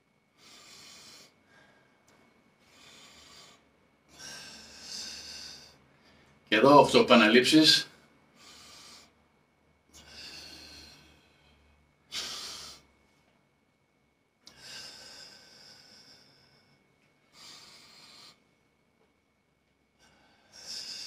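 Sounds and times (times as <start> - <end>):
man breathing hard: 0.4 - 6.5, 7.9 - 9.3, 9.9 - 13.0, 14.5 - 18.6, 19.9 - 21.0.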